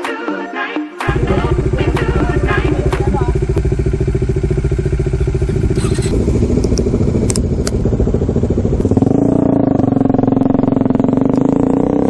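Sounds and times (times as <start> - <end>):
motorcycle engine idling: 1.1 - 12.0
sharp clicks: 5.7 - 7.8.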